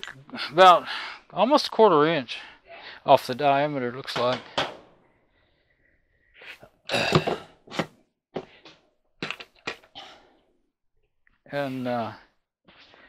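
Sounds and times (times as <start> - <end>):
knocks and thunks of dryer parts: 4.2 - 4.9.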